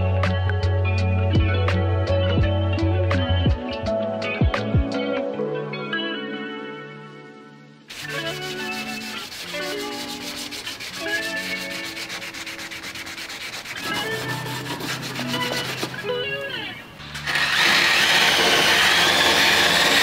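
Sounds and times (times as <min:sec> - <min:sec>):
scuff pad scrubbing metal: 0:07.9 - 0:16.7.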